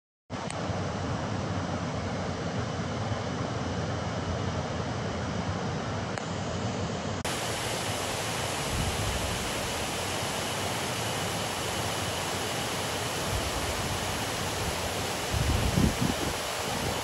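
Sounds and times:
water rushing over a weir: 7.2 - 17.0.

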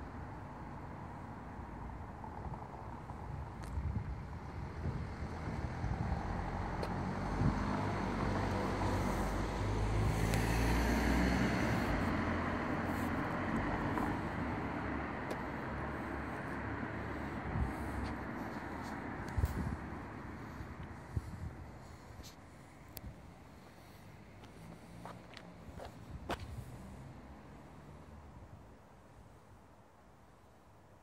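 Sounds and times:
vehicle passing: 4.7 - 22.7, 23.4 - 28.4.

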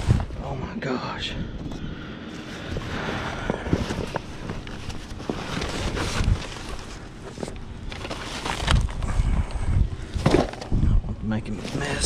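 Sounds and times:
cardboard and plastic bags rustling: 2.4 - 10.8.

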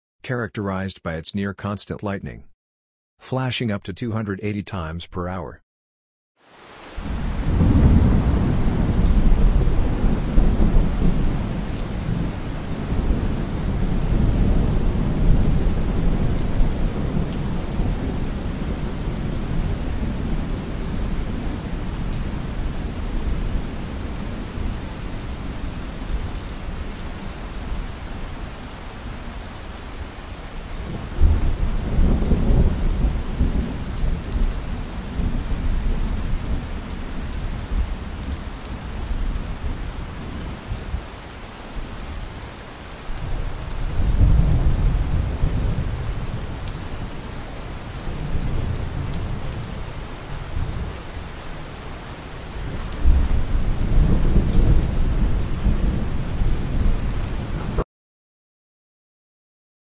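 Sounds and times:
heavy rain: 6.4 - 57.8
rolling thunder: 7.0 - 21.7, 30.8 - 36.7, 43.9 - 46.5, 52.9 - 57.8.

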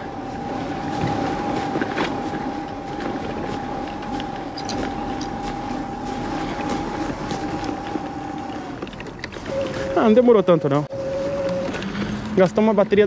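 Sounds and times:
electric bike motor whining: 0.0 - 13.0
bike clicks and rattles: 6.3 - 9.8.

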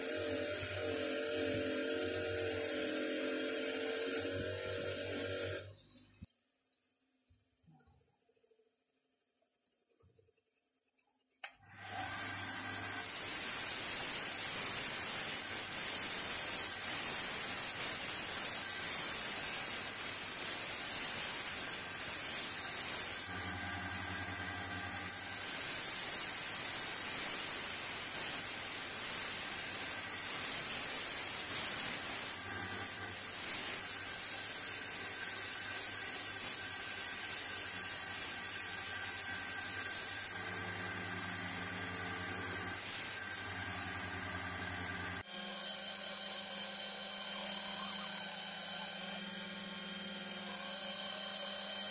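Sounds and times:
grinder motor hum: 0.0 - 5.7, 40.3 - 51.9.

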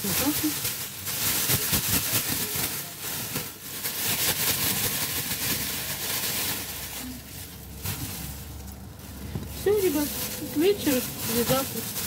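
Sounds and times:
contents tumbling in bag: 0.0 - 12.0
plastic bag crinkling and rustling: 0.0 - 12.0.

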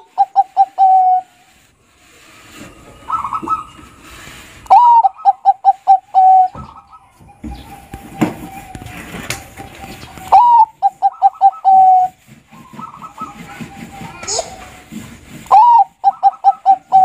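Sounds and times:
dove cooing: 0.0 - 1.5, 2.5 - 14.9, 15.5 - 17.0.

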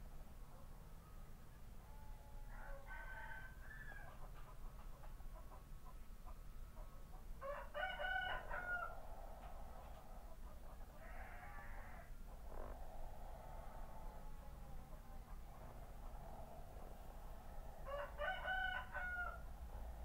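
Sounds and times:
low steady hum: 0.0 - 20.0
rooster crowing: 1.9 - 4.2, 7.4 - 9.0, 17.8 - 19.5.

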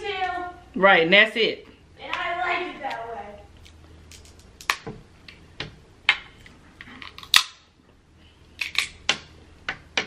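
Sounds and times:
crab shell cracking: 7.0 - 7.6.

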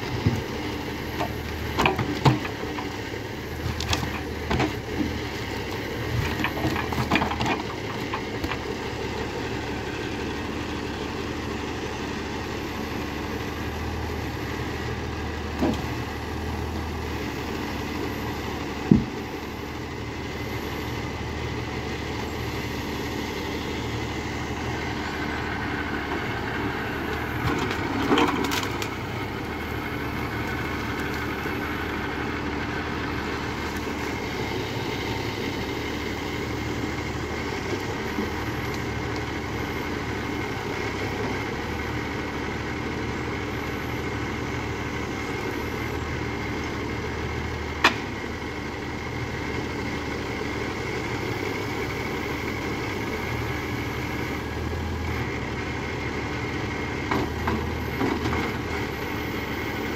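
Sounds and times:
tractor diesel engine running: 0.0 - 59.9
wood knocks: 18.9 - 19.1
wood and branches cracking: 26.9 - 29.1, 30.1 - 31.8.

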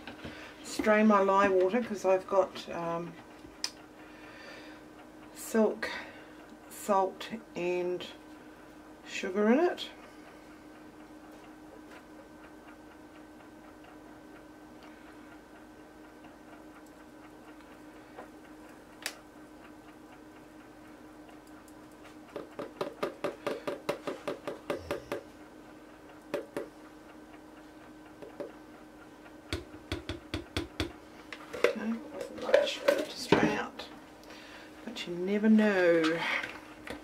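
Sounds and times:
faint steady hum: 0.0 - 37.0.

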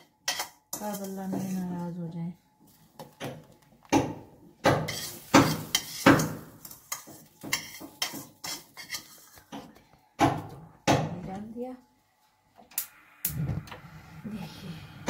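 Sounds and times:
spoon knocking and scraping pot: 0.0 - 1.7, 3.9 - 11.0.

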